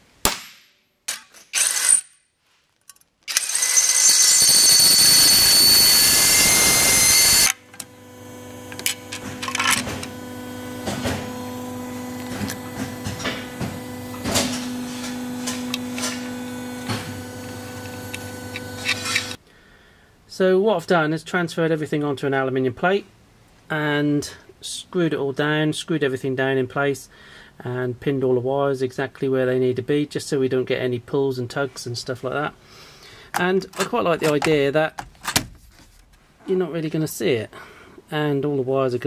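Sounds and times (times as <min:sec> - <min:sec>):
power drill drilling metal: 0:01.5 - 0:02.1, 0:03.3 - 0:19.4
steady low hum: 0:05.4 - 0:19.4
parts clicking and knocking: 0:08.7 - 0:10.2, 0:33.3 - 0:36.2.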